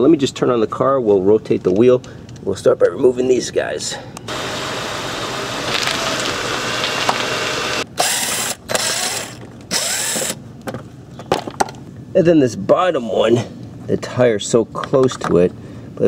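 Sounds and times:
cordless driver running: 0:04.3 - 0:10.4.

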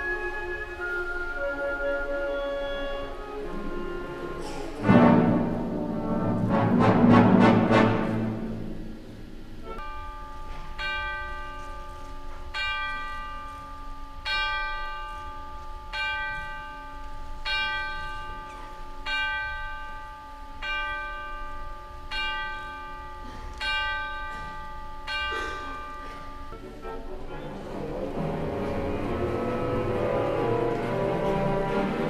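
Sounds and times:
deep clock bell striking: 0:09.8 - 0:26.6.

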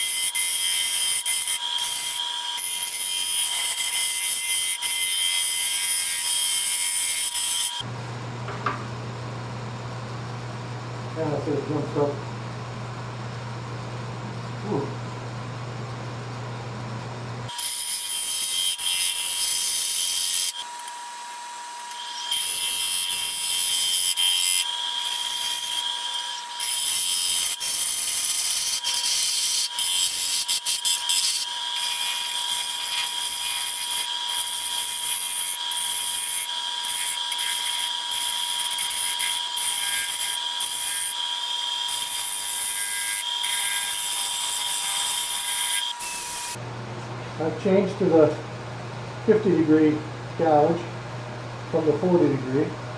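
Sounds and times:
gouge cutting wood on lathe: 0:21.7 - 0:46.6.

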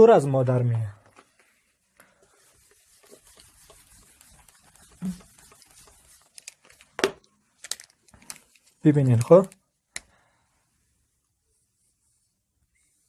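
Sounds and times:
eraser rubbing on whiteboard: 0:02.2 - 0:06.8.

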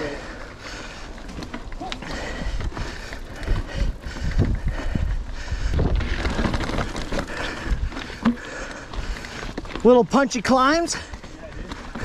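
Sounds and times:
bike rolling over dirt trail: 0:00.0 - 0:12.0
bike knocks and rattles: 0:01.3 - 0:12.0
wind buffeting microphone: 0:02.1 - 0:08.2.

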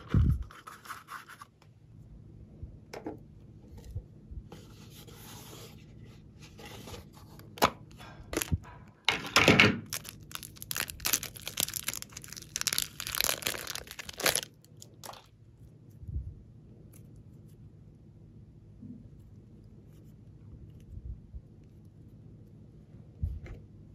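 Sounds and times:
plastic wrapping crinkling and tearing: 0:09.8 - 0:15.3
soft handling of clay: 0:18.8 - 0:23.8.

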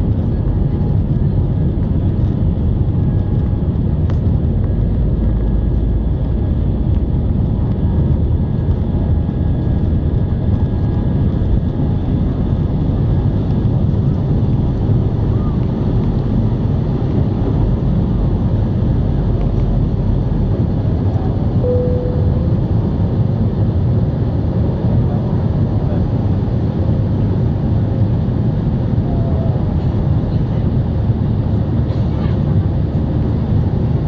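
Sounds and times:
jet engines rumbling: 0:00.0 - 0:34.0
short steady tone: 0:21.6 - 0:23.0.

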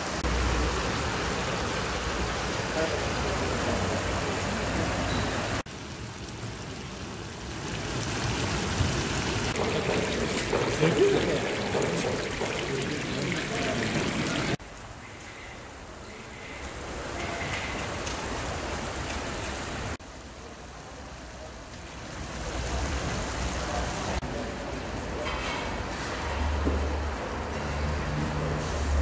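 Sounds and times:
broth simmering with watery hiss: 0:00.0 - 0:25.0.

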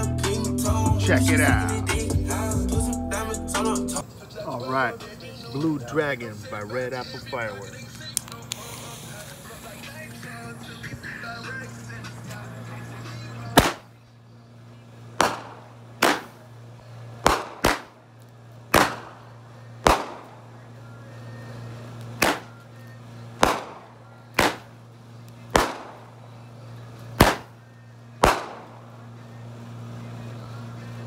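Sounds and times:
steady low hum: 0:00.0 - 0:31.0
firework bangs: 0:13.5 - 0:13.9, 0:15.2 - 0:16.5, 0:17.1 - 0:18.0, 0:18.7 - 0:20.6, 0:22.1 - 0:22.6, 0:23.4 - 0:24.8, 0:25.5 - 0:26.2, 0:27.1 - 0:27.6, 0:28.2 - 0:28.9.

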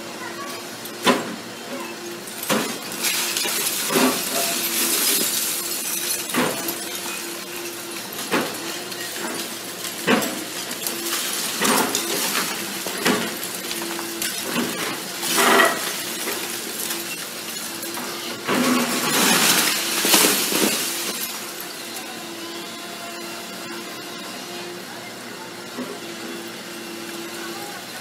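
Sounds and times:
masonry cracking and crashing: 0:02.0 - 0:22.3
rubble falling: 0:02.5 - 0:21.6.

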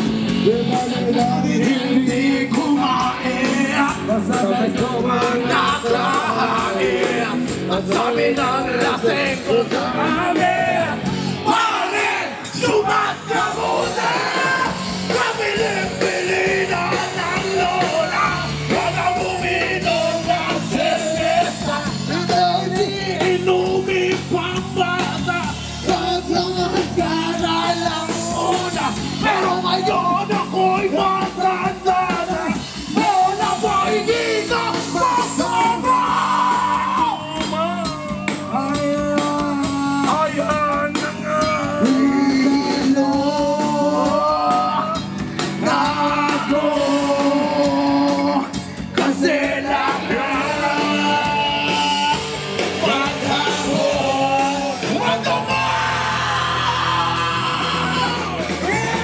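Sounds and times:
drums: 0:00.0 - 0:59.0
electric guitars: 0:00.0 - 0:59.0
men singing into microphones: 0:00.0 - 0:59.0.

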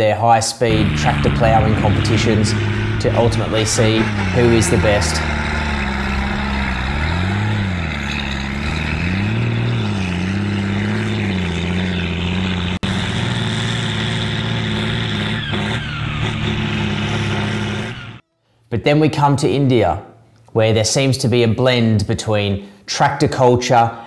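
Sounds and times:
tractor diesel engine under load: 0:00.7 - 0:18.2.

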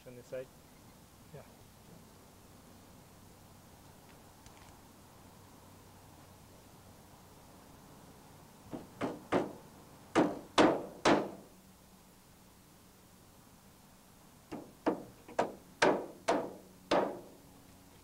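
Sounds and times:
hammer tapping nails into metal: 0:14.5 - 0:17.3.

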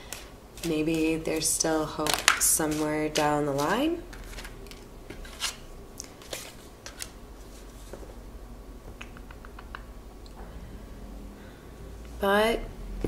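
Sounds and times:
cards tapping and rubbing on table: 0:00.0 - 0:07.1
deck of cards shuffling: 0:00.0 - 0:08.1.

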